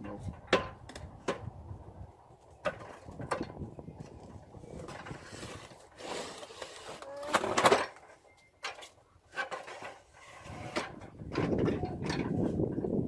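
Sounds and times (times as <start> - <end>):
wooden window frame scraping: 4.8 - 7.6, 9.3 - 12.6.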